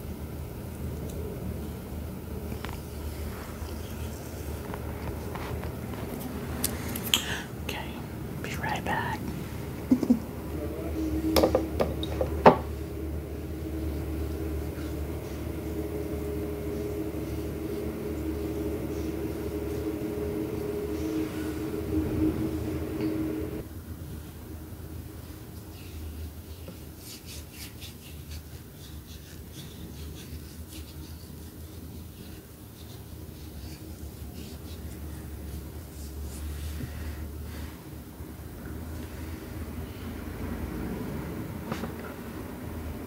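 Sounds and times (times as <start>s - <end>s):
steady low hum: 0.0s - 43.0s
household appliance humming: 13.4s - 23.6s
fingers rubbing paste on skin: 26.7s - 36.5s.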